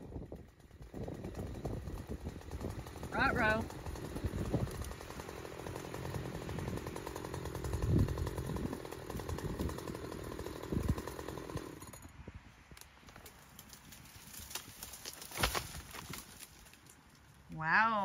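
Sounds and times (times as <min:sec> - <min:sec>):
engine running with pulsing note: 0:00.0 - 0:12.0.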